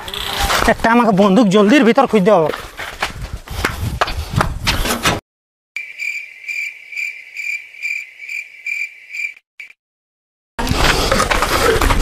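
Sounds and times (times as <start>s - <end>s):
cricket chirping: 5.8s - 9.8s.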